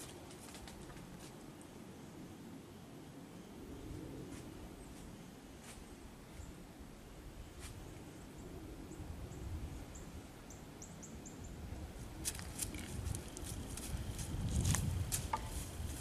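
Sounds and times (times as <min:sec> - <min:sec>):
dry leaves rustling: 0:00.0 - 0:01.4, 0:12.2 - 0:16.0
low outdoor rumble: 0:00.0 - 0:16.0.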